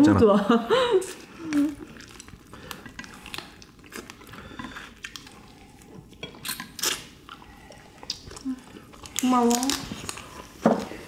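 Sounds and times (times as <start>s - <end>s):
wet chewing and biting: 1.5s - 10.6s.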